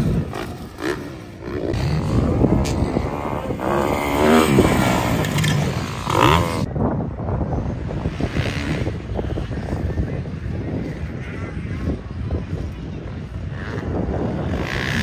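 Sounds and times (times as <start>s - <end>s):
dirt bike engines revving: 0.0s - 6.8s, 7.5s - 15.0s.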